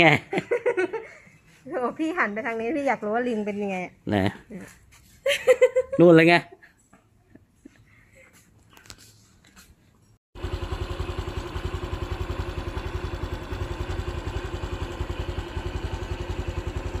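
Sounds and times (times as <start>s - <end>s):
small motorcycle engine running: 10.4s - 17.0s.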